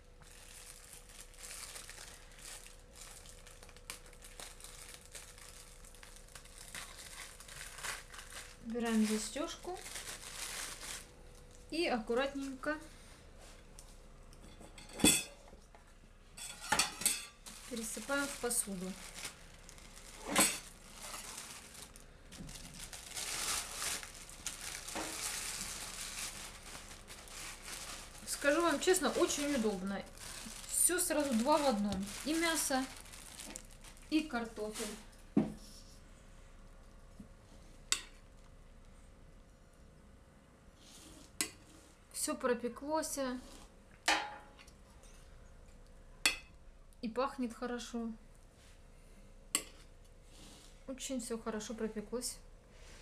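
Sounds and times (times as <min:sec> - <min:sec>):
plastic bag crinkling: 0:00.0 - 0:11.6, 0:17.4 - 0:35.2.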